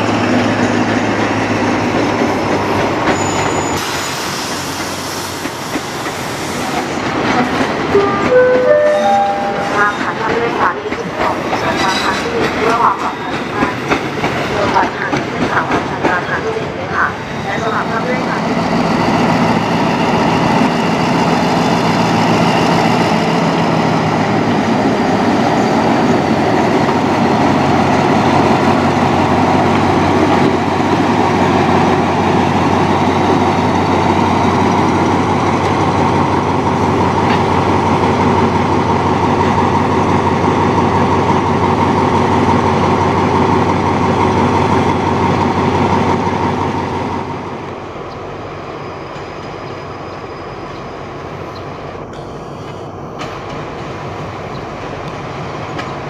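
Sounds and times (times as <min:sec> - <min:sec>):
diesel train engine running: 0:00.0 - 0:56.0.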